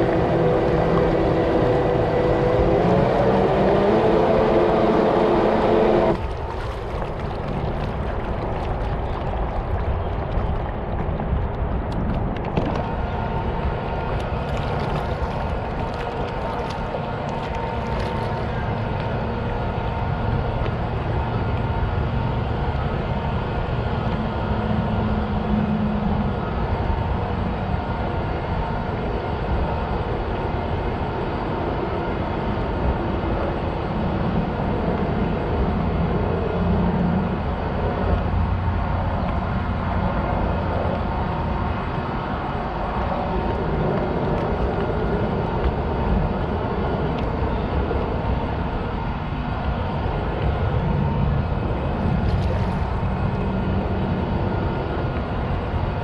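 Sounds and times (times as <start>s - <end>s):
kayak motor running: 0.0s - 30.7s, 33.9s - 56.0s
faint drive whine: 0.0s - 56.0s
water and wind rushing: 0.0s - 56.0s
light splashes and drips: 6.2s - 13.0s, 13.9s - 19.3s, 52.0s - 53.5s.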